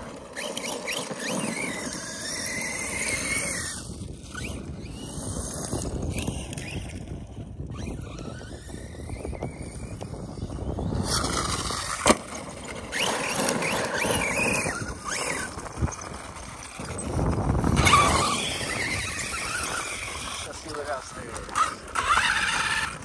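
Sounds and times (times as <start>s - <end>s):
electric motor whine revving: 0.0s - 23.0s
tyres crunching gravel: 11.1s - 23.0s.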